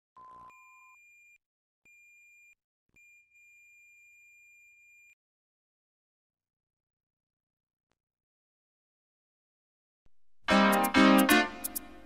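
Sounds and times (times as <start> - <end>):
high pure electronic tone: 10.5 - 12.0.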